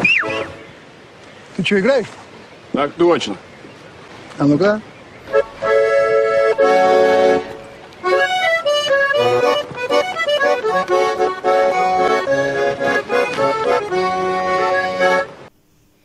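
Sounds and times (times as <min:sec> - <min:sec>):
button accordion playing: 0:05.3 - 0:15.5.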